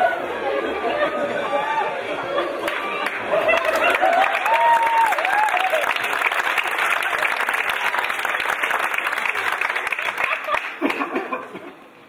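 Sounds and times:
audience applauding: 2.6 - 11.4.

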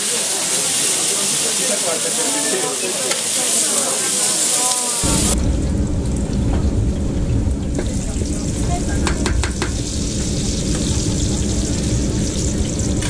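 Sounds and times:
pancakes sizzling in hot oil: 0.0 - 5.4, 9.0 - 13.0.

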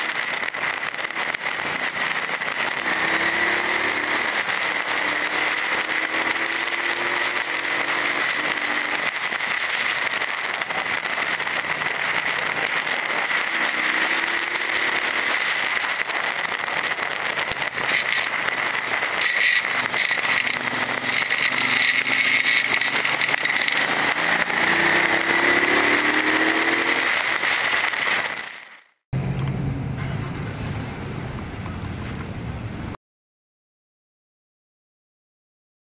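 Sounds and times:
wind and road rush: 0.0 - 33.0
motorcycle engine revving: 0.9 - 28.5.

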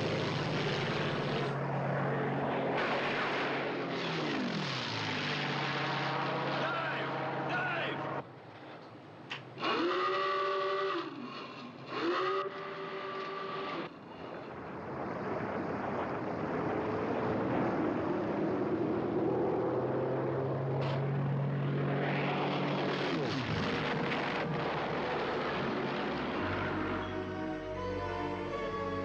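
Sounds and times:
propeller aircraft passing over: 0.0 - 8.3, 13.8 - 29.0
alarm klaxon blaring: 9.7 - 11.1, 26.4 - 29.0.

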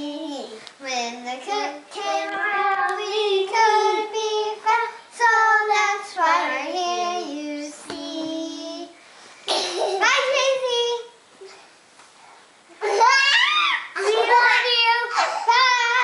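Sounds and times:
girls singing together: 0.0 - 9.0.

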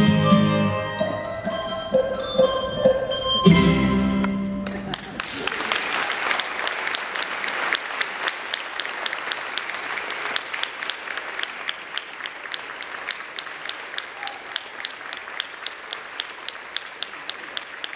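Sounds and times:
audience applauding: 4.6 - 17.9.

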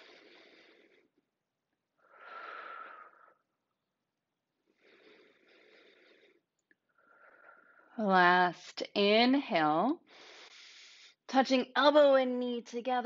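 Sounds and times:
woman breathing slowly: 0.0 - 1.4, 2.0 - 3.7, 4.6 - 8.0, 10.1 - 11.3.

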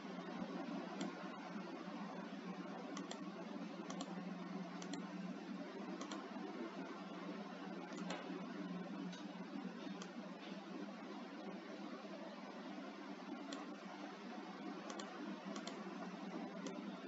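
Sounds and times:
low electrical hum and hiss: 0.0 - 17.0
computer mouse clicks: 0.2 - 1.4, 2.9 - 5.2, 5.9 - 6.3, 7.9 - 8.4, 9.1 - 10.2, 13.4 - 13.8, 14.8 - 16.9.

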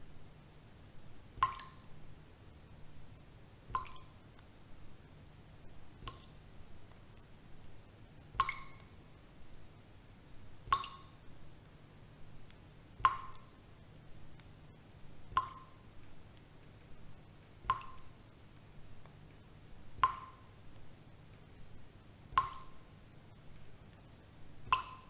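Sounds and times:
water drops plinking: 1.4 - 1.9, 3.8 - 4.1, 8.4 - 8.9, 10.7 - 11.1, 13.1 - 13.6, 15.4 - 15.8, 17.7 - 18.1, 22.4 - 22.8, 24.7 - 25.0.

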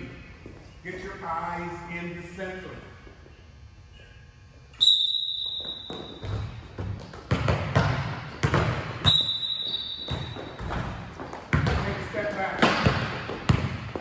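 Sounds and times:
sharp whistle blast: 4.8 - 6.1, 9.0 - 10.1
basketballs bouncing on hardwood floor: 5.6 - 14.0.

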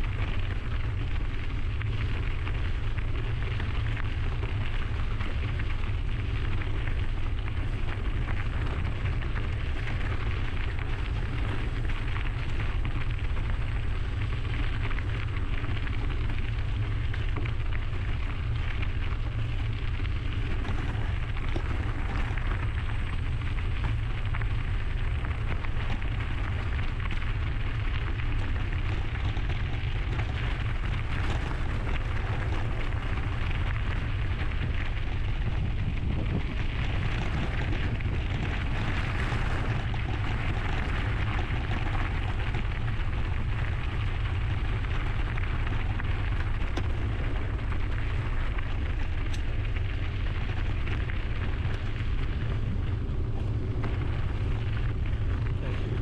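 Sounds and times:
bike tyres rolling on trail: 0.0 - 56.0
wind rumble on microphone: 0.0 - 56.0.

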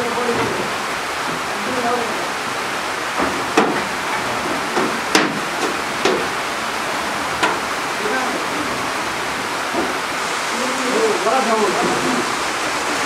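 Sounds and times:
steady hiss: 0.0 - 13.0
sharp knocks on wood: 3.2 - 6.3, 7.4 - 7.6.

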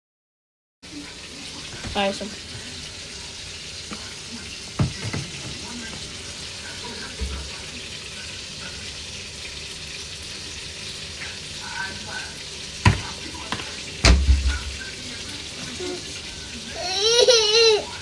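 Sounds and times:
fries frying in hot oil: 0.8 - 18.0.

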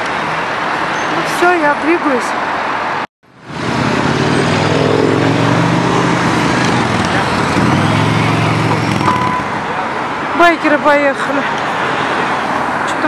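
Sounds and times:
vehicle engines accelerating: 3.3 - 10.4.

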